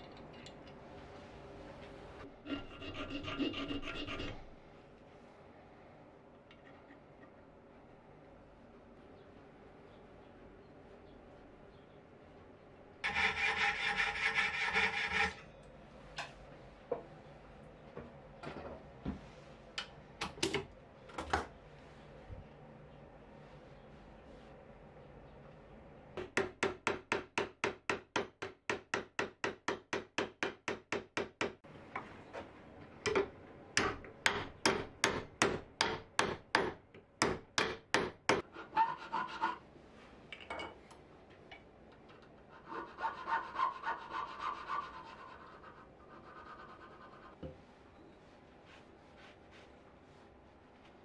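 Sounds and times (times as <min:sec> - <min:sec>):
hand file stroking brass: 0:13.0 - 0:15.4
soft rubbing: 0:43.0 - 0:51.0.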